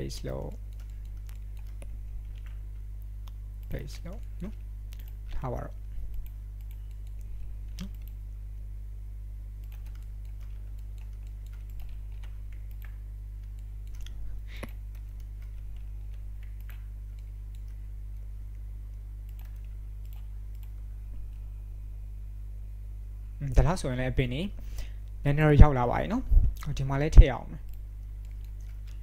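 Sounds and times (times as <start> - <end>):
steady low hum: 0.0 - 29.0
mouse clicks: 4.4 - 5.2, 6.1 - 8.2.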